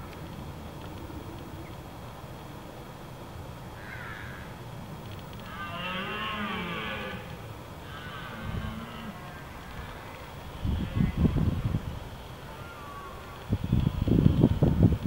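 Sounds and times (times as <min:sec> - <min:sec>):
deer stag roaring: 0:05.4 - 0:10.2.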